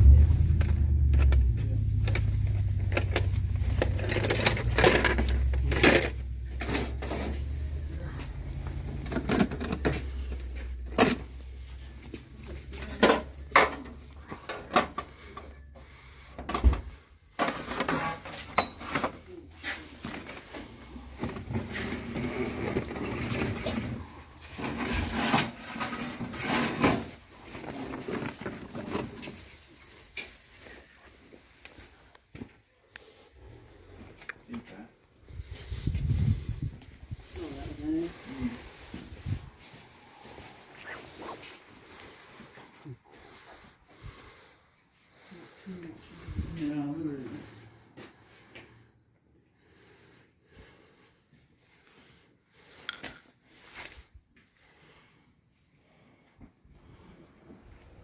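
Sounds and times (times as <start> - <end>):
low rumble: 0.0 - 12.6, 35.2 - 40.1
plastic dishes clattering: 3.0 - 7.3, 9.0 - 10.2.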